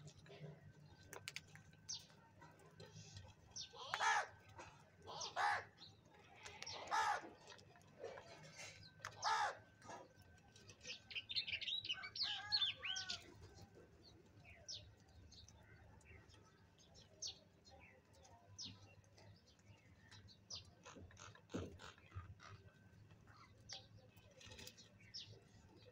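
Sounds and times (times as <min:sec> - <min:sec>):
crows cawing: 0:03.8 - 0:04.4, 0:05.1 - 0:05.8, 0:06.7 - 0:07.4, 0:09.1 - 0:09.7.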